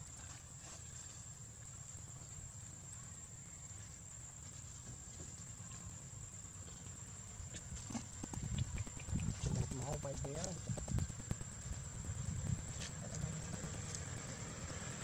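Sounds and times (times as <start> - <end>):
low background rumble: 7.1 - 15.0.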